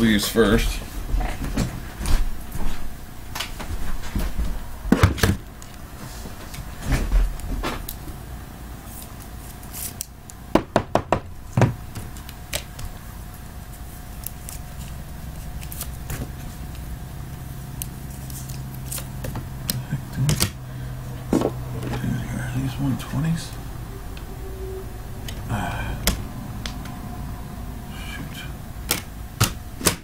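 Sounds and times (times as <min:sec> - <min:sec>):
cards slipped into plastic sleeves: 0:08.9 - 0:10.2, 0:13.8 - 0:16.8.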